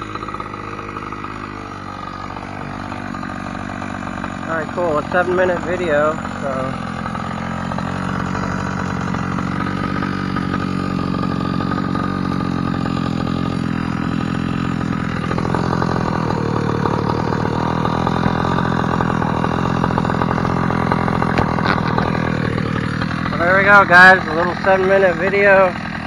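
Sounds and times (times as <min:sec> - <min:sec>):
model truck gas engine idling: 0:00.0 - 0:26.0.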